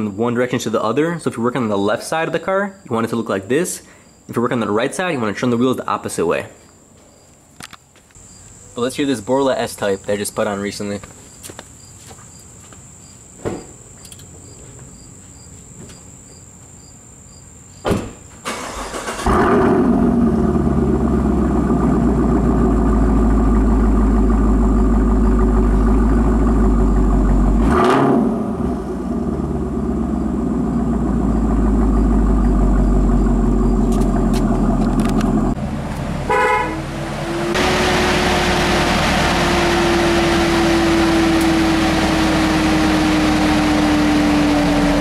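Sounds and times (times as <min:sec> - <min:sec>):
faint insect chirping: 0:02.3 - 0:18.5, 0:30.0 - 0:34.3
car engine idling loudly: 0:19.3 - 0:45.0.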